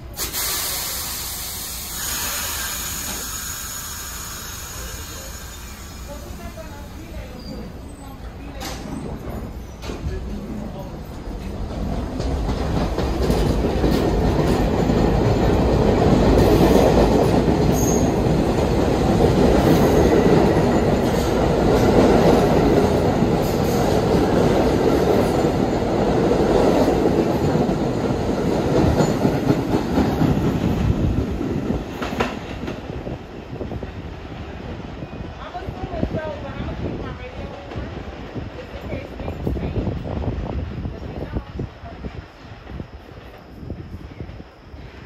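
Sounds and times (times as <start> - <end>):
subway train on rails: 0.0 - 45.0.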